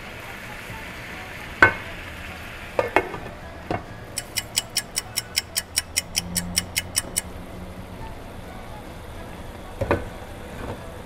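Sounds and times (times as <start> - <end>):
quick even ticking: 4.1 - 7.4
sharp click: 4.2 - 7.3.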